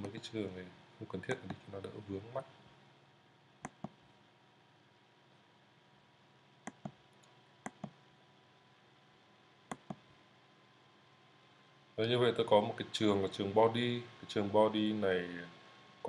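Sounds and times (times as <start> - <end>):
computer mouse clicking: 1.3 - 1.6, 3.6 - 4.0, 6.7 - 8.0, 9.7 - 10.0.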